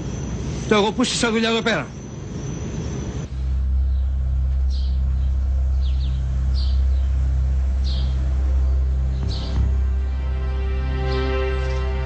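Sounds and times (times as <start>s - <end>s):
deep low drone: 2.6s - 12.0s
high bird chirps: 3.6s - 10.0s.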